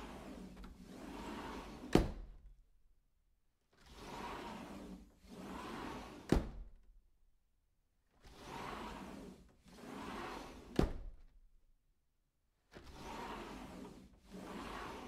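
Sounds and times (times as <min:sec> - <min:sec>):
sliding door rolling on track: 0:00.0 - 0:02.1, 0:03.8 - 0:06.4, 0:08.2 - 0:10.9, 0:12.8 - 0:15.0.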